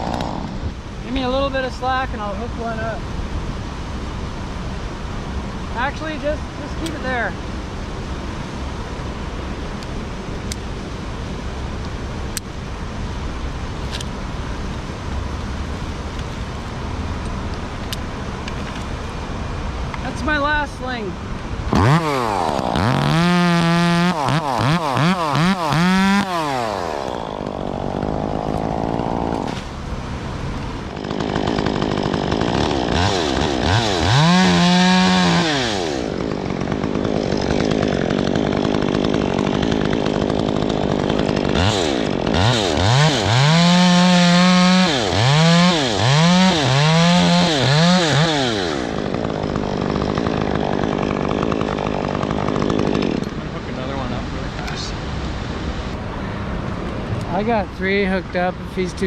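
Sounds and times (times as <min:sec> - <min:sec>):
chainsaw revving: 0:00.0 - 0:00.7, 0:21.7 - 0:29.8, 0:30.8 - 0:54.9.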